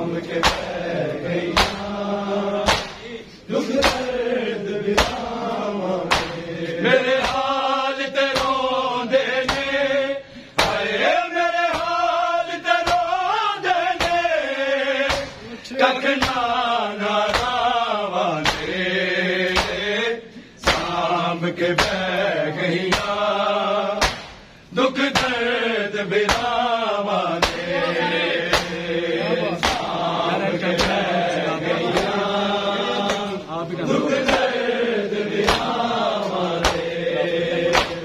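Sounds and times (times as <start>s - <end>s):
hands slapping chests: 0.3s - 0.8s, 1.5s - 2.0s, 2.6s - 3.1s, 3.7s - 4.2s, 4.9s - 5.4s, 6.0s - 6.5s, 7.1s - 7.6s, 8.2s - 8.6s, 9.4s - 9.8s, 10.6s - 10.9s, 11.7s - 12.0s, 12.8s - 13.1s, 14.0s - 14.2s, 15.1s - 15.4s, 16.2s - 16.5s, 17.3s - 17.6s, 18.4s - 18.8s, 19.5s - 19.9s, 20.6s - 21.0s, 21.6s - 22.0s, 22.9s - 23.2s, 24.0s - 24.5s, 25.1s - 25.4s, 26.2s - 26.6s, 27.4s - 27.7s, 28.5s - 28.8s, 29.6s - 30.0s, 30.7s - 31.1s, 31.9s - 32.2s, 33.0s - 33.4s, 35.4s - 37.0s, 37.7s - 38.0s
men chanting elegy: 24.7s - 38.0s.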